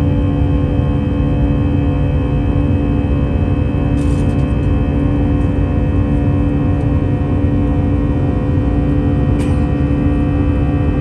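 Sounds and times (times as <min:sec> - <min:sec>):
jet engine drone in cabin: 0:00.0 - 0:11.0.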